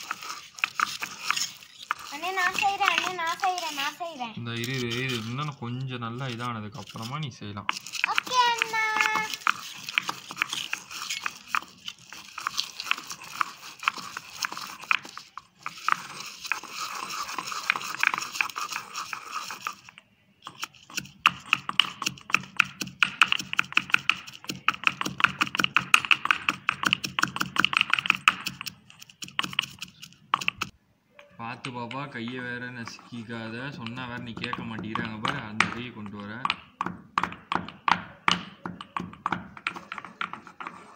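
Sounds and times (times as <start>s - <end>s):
pestle pounding in stone mortar: 7.7s - 19.4s, 20.9s - 30.7s, 33.7s - 40.9s.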